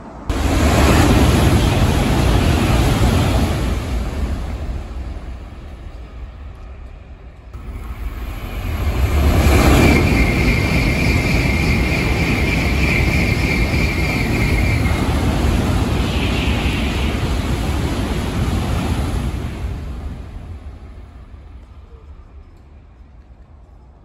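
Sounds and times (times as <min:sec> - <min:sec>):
train passing with loud roar: 0:00.0 - 0:24.0
high steady whine: 0:07.6 - 0:19.2.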